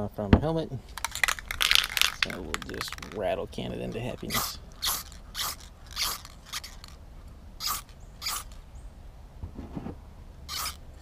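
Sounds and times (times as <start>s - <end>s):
spray paint can hissing: 4.2s - 6.9s, 7.6s - 8.5s, 10.5s - 10.8s.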